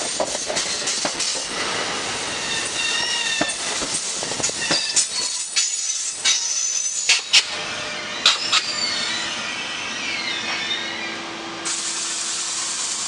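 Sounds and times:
wheel clacks over rail joints: 0:00.0 - 0:01.6, 0:02.6 - 0:07.5
electric locomotive hum: 0:00.0 - 0:13.0
train coaches rolling past: 0:00.0 - 0:13.0
faint wheel squeal: 0:07.8 - 0:11.2
loud hiss: 0:11.6 - 0:13.0.

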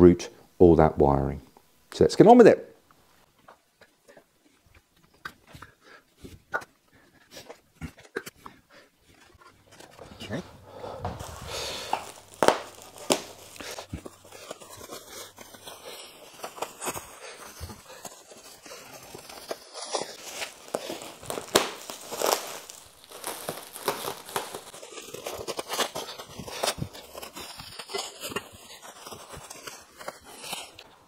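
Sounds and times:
bubble wrap crinkling: 0:09.0 - 0:31.0.

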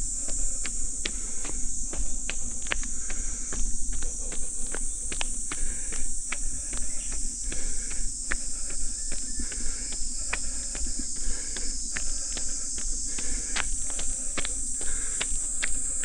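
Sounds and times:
cicada chorus drone: 0:00.0 - 0:16.0
running footsteps on trail: 0:00.0 - 0:16.0.

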